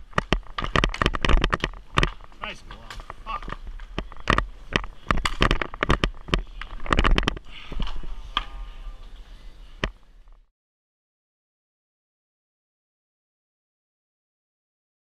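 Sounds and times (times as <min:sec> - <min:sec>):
hockey sticks and skates clacking: 0:00.0 - 0:10.1.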